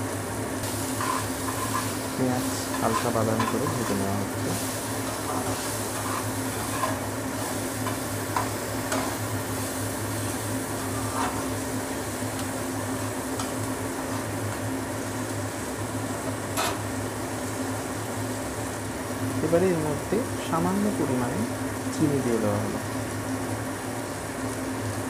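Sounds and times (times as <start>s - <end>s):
steady low hum: 0.0s - 23.5s
onions sizzling in oil: 0.0s - 25.0s
spatula scraping pan: 0.9s - 9.3s, 10.7s - 11.7s.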